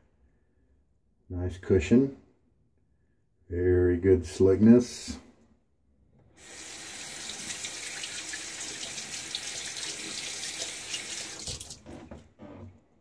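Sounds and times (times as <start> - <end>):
water running from tap: 6.4 - 12.0
water splashing on face: 7.1 - 11.8.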